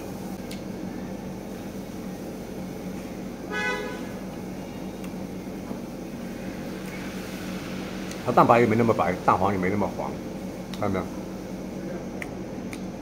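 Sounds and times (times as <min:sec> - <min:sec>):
low background hum: 0:00.0 - 0:13.0
vehicle horn toot: 0:03.5 - 0:04.2.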